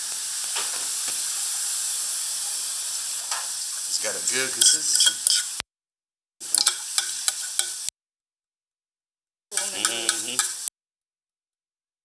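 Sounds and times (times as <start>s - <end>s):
food sizzling in a pan: 0.0s - 5.6s, 6.4s - 7.9s, 9.5s - 10.7s
utensils clicking and tapping: 4.5s - 5.6s, 6.5s - 7.9s, 9.5s - 10.7s.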